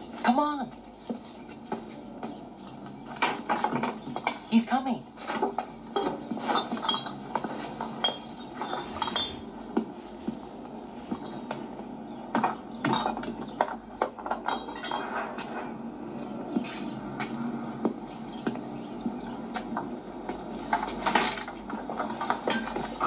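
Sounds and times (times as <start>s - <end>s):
glass and wooden crates clinking: 5.9s - 9.4s, 20.7s - 23.0s.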